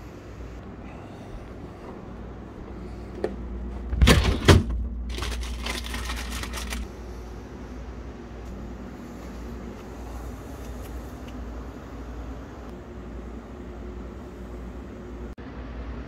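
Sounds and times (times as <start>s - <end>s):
refrigerator drawer clunks: 3.8s - 5.4s
plastic packaging rustling: 4.0s - 6.9s.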